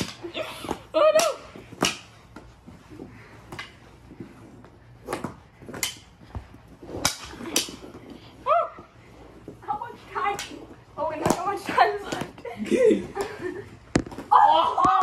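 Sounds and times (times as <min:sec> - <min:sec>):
hockey sticks clacking: 0:00.0 - 0:08.4, 0:09.5 - 0:12.5.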